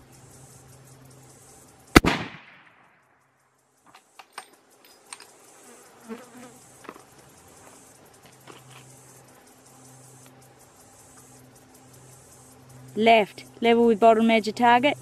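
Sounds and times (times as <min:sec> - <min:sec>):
insects buzzing: 0:00.0 - 0:15.0
rifle shot: 0:01.9 - 0:03.0.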